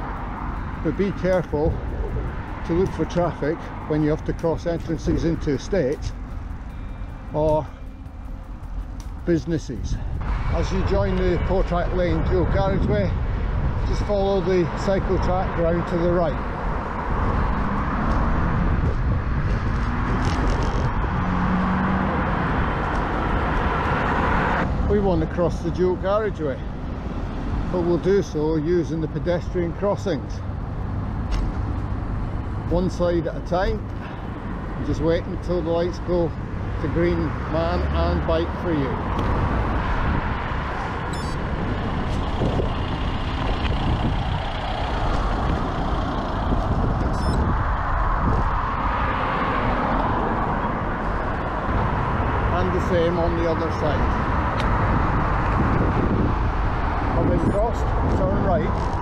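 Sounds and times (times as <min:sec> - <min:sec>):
road traffic: 0:00.0 - 0:59.0
wind buffeting a microphone: 0:01.0 - 0:05.4, 0:09.6 - 0:25.0, 0:38.9 - 0:59.0.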